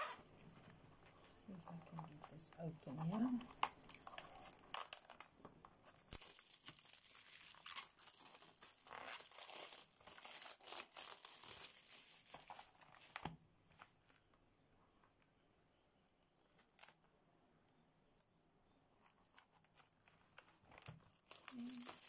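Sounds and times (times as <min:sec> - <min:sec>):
plastic shrink wrap tearing: 0:00.0 - 0:00.3, 0:03.0 - 0:13.2, 0:19.0 - 0:22.0.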